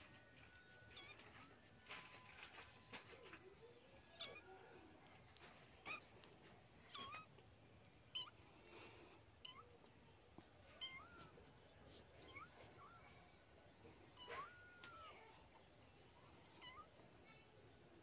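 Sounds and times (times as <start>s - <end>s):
kitten mewing: 5.3s - 7.4s.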